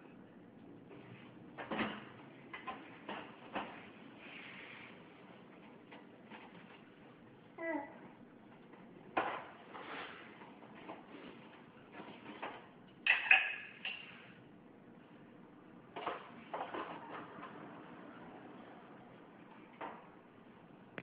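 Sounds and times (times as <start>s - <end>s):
dishes clinking and rattling: 12.0s - 14.2s.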